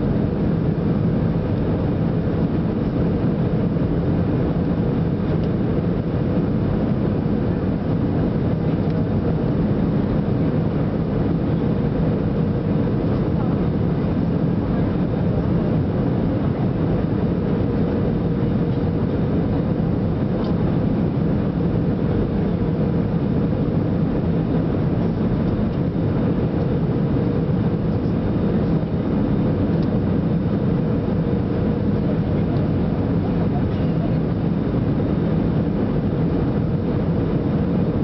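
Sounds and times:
airliner engines running: 0.0s - 38.0s
faint steady hum: 0.0s - 38.0s.

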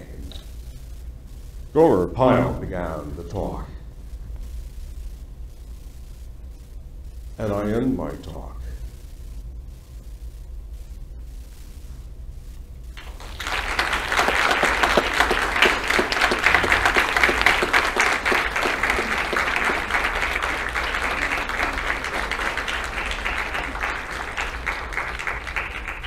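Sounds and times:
audience applauding: 13.0s - 26.0s.

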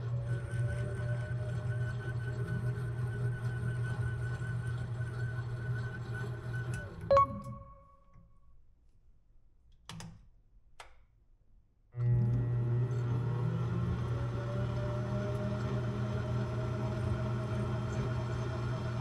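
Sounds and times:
lathe motor hum: 12.1s - 19.0s.

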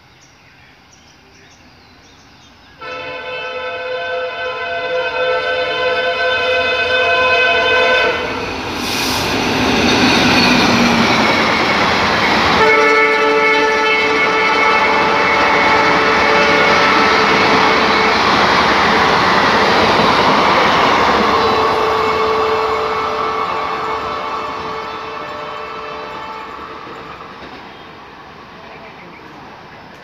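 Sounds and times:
locomotive horn: 2.8s - 8.6s, 9.8s - 19.5s, 20.1s - 27.2s
train running and rail clatter: 4.2s - 30.0s.

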